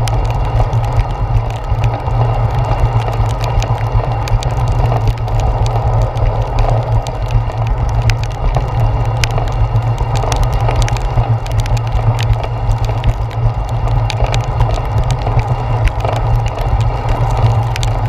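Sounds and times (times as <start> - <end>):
low rumble of bicycle riding: 0.0 - 18.0
raindrops tapping on camera: 0.0 - 18.0.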